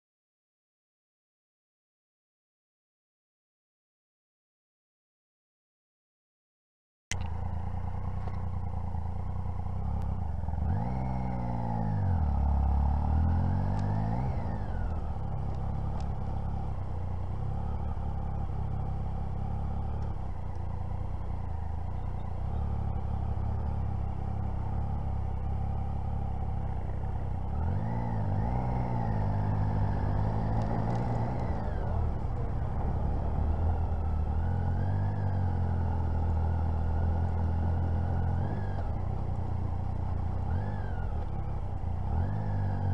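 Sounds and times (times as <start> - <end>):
motorcycle engine revving: 7.1 - 42.9.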